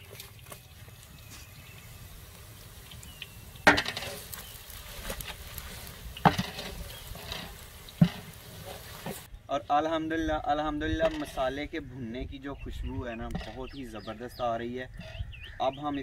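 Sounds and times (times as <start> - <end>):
hot oil sizzling: 0.0 - 9.3
wooden spatula scraping metal pot: 3.6 - 9.3.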